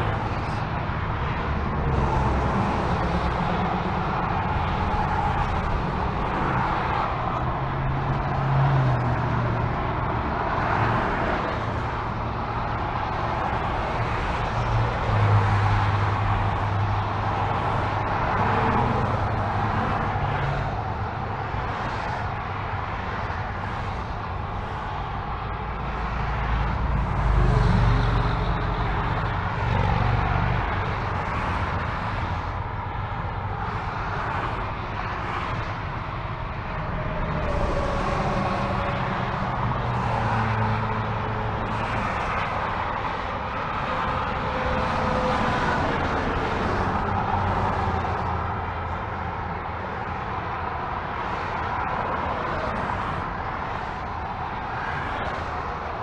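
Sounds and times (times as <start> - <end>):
freeway traffic passing: 0.0 - 56.0.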